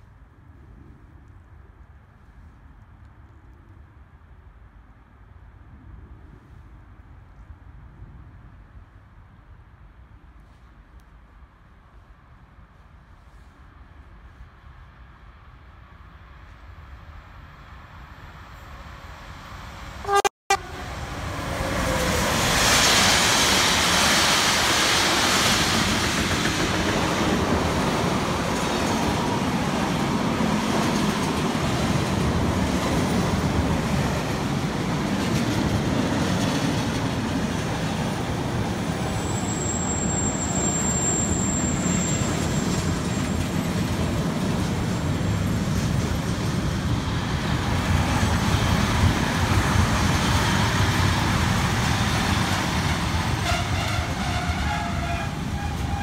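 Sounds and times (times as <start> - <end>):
electric locomotive passing: 17.1 - 56.0
wagons rumbling over rails: 19.1 - 56.0
train horn toot: 20.0 - 21.1, 53.4 - 56.0.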